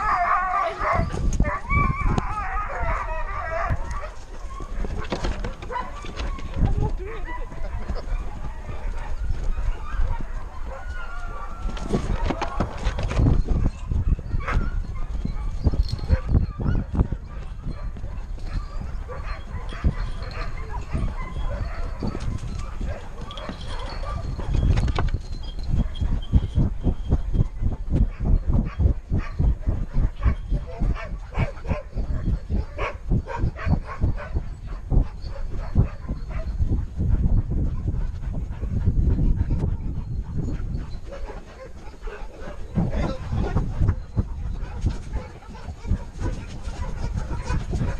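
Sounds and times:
paws thudding on dirt: 0.0s - 47.9s
dog running strides knocking: 3.6s - 47.9s
harness mount bumps and rubbing: 4.8s - 7.0s, 11.8s - 13.6s.

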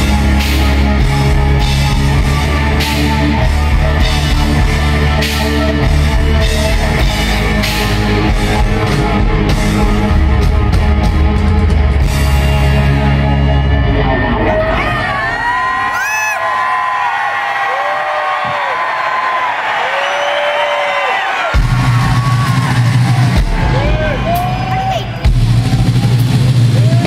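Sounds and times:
live hard rock band: 0.0s - 16.0s, 21.5s - 27.0s.

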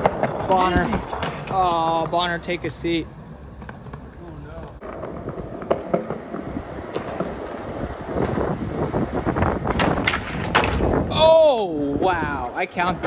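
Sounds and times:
skateboard wheels rolling on concrete: 0.0s - 13.0s
wind buffeting microphone: 5.1s - 12.4s.

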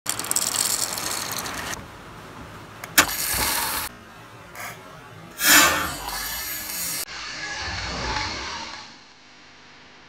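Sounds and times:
birdseed pouring into plastic bottle: 0.1s - 1.7s
hiss: 5.4s - 7.0s.

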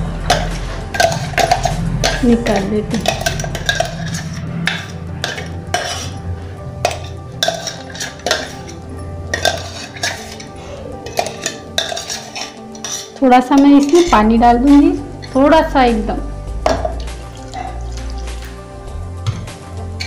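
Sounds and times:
metal spoon scraping steel jar: 0.3s - 6.2s, 6.8s - 14.2s, 15.2s - 15.5s.

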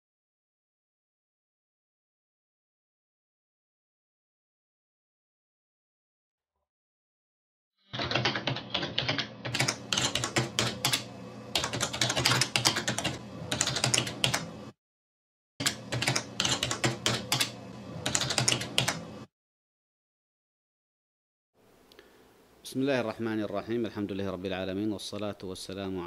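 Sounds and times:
rapid keyboard typing: 7.9s - 14.6s, 15.6s - 19.1s.

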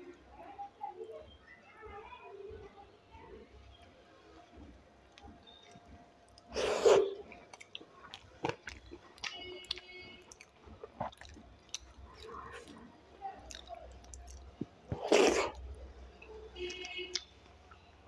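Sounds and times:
close chewing with wet mouth clicks: 5.1s - 15.7s, 16.6s - 17.6s
wet bursts of food into mouth: 6.4s - 7.7s, 13.5s - 15.7s.

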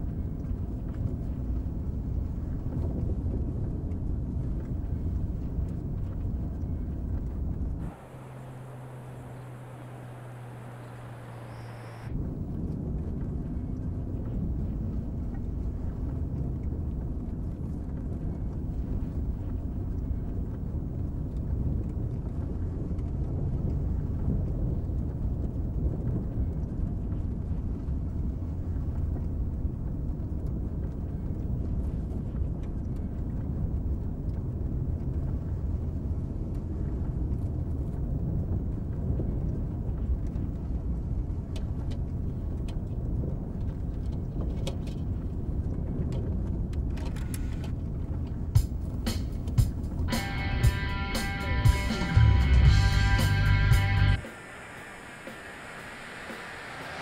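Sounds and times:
car engine and road noise: 5.5s - 13.4s, 34.8s - 57.0s.

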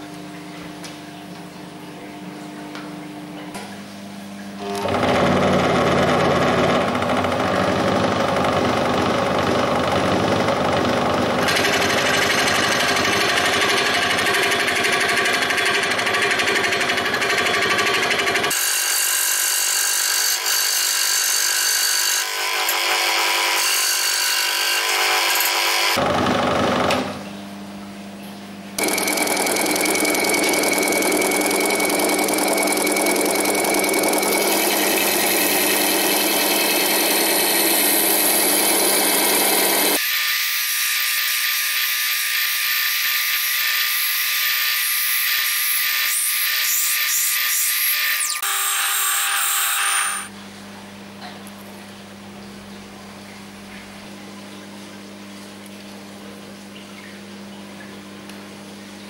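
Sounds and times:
disc sander whining: 28.8s - 50.3s.

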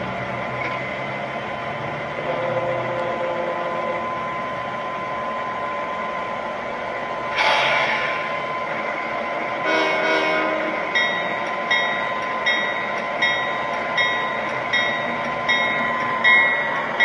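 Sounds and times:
model train rumbling: 0.0s - 17.0s
train horn blast: 9.6s - 10.9s.

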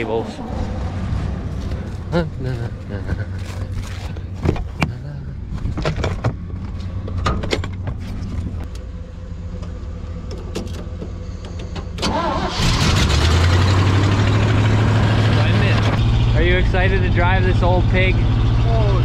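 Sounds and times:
vehicle engine idling: 0.0s - 12.8s
truck engine cranking and running: 1.0s - 19.0s.

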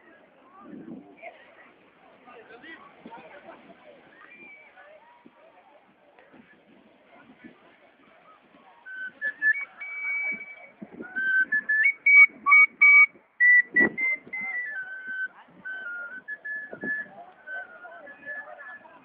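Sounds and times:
person whistling a tune: 8.9s - 18.9s.

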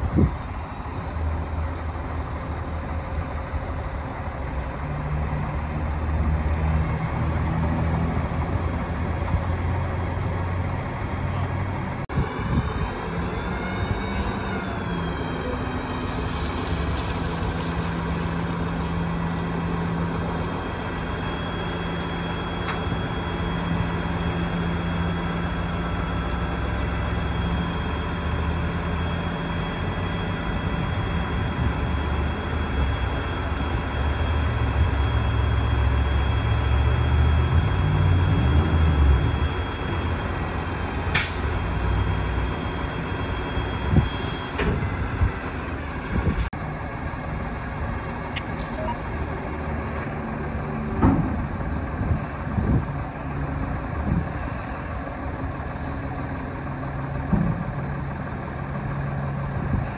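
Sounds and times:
diesel truck engine running: 0.0s - 59.9s
hydraulic hoist whine: 12.0s - 46.7s.

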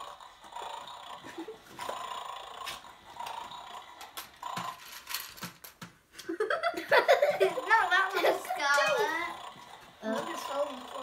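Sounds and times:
electronic snoring sound effect: 0.0s - 4.8s, 7.4s - 11.0s.

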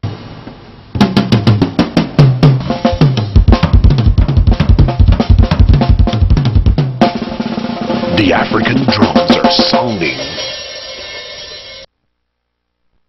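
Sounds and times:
fast drum strokes: 0.9s - 11.9s
deep bass drum beats: 1.0s - 10.2s.

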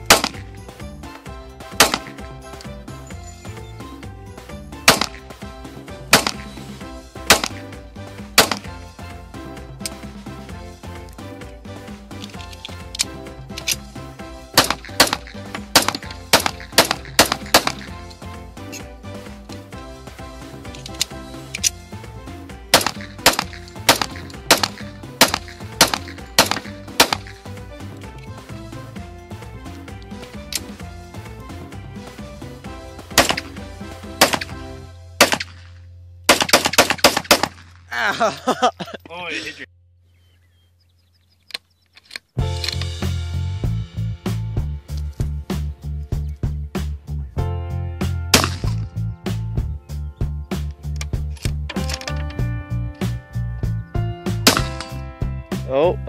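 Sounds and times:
pistol shots: 0.0s - 0.4s, 1.7s - 2.2s, 4.8s - 5.2s, 6.1s - 6.6s, 7.2s - 7.7s, 8.4s - 8.7s, 14.5s - 17.9s, 22.7s - 27.3s, 33.1s - 33.6s, 34.2s - 34.6s, 35.2s - 35.7s, 36.3s - 37.8s, 48.3s - 48.8s, 54.4s - 54.9s
background music: 0.0s - 39.7s, 42.0s - 56.0s.

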